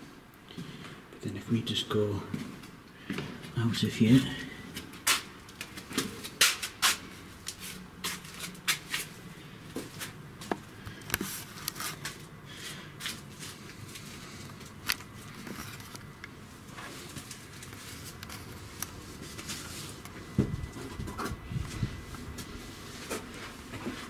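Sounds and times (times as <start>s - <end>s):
footsteps: 4.7s - 15.9s.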